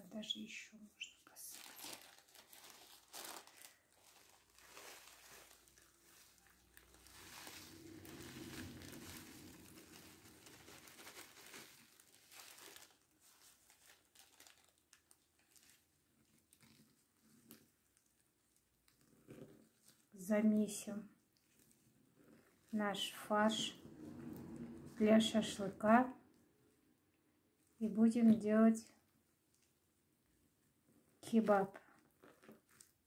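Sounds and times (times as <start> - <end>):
plastic bag crinkling: 1.3 - 18.1.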